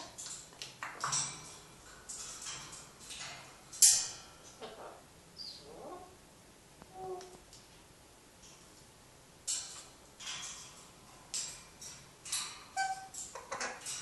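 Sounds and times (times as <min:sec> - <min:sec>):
parrots chirping and clicking: 0:00.0 - 0:05.6, 0:09.4 - 0:14.0.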